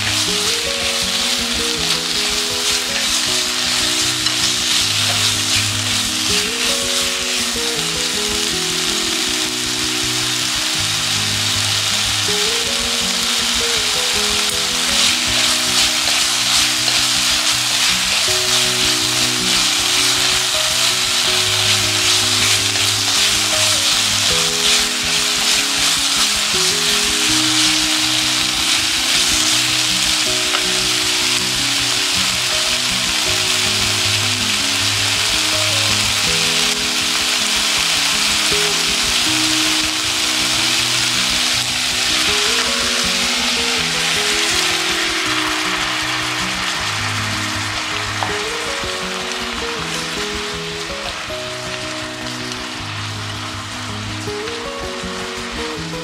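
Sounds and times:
chopsticks stirring: 0.0s - 51.3s
chicken sizzling in skillet: 0.0s - 56.0s
soft background music: 0.0s - 56.0s.

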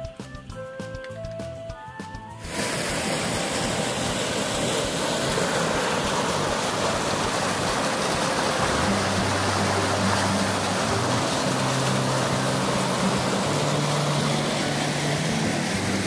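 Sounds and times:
background music: 0.0s - 16.0s
stream water rushing: 2.4s - 16.0s.

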